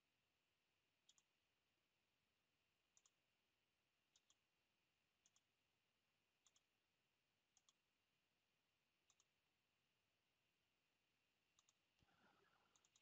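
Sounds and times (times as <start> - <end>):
computer mouse clicks: 1.0 - 1.4, 2.9 - 3.2, 4.1 - 4.5, 5.2 - 5.5, 6.4 - 6.7, 7.5 - 7.9, 9.0 - 9.4, 11.5 - 13.0.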